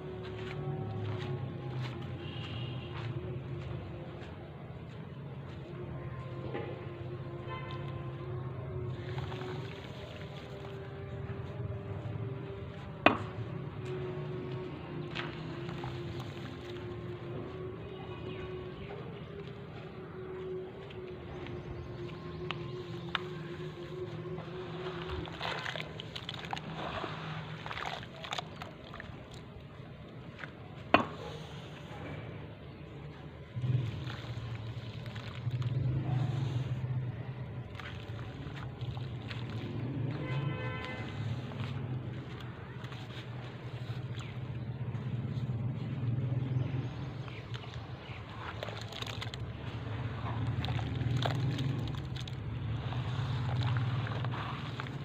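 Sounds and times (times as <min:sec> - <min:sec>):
wet cement crumbled in water: 0:08.8 - 0:17.3, 0:22.0 - 0:31.2, 0:33.0 - 0:45.4, 0:46.3 - 0:55.0
water fizzing with crackles: 0:24.4 - 0:29.5, 0:33.6 - 0:36.8, 0:37.6 - 0:44.5, 0:47.2 - 0:55.0.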